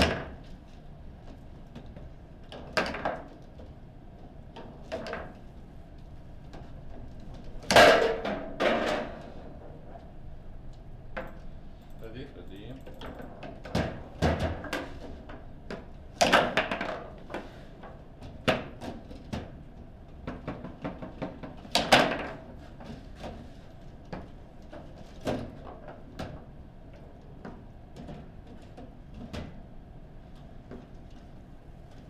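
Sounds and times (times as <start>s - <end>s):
foosball ball knocks and clacks: 13.2s - 17.5s, 20.2s - 22.6s.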